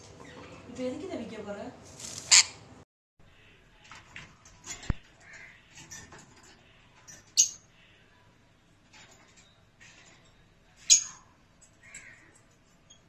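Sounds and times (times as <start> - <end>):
parrots squawking: 2.2 - 2.6.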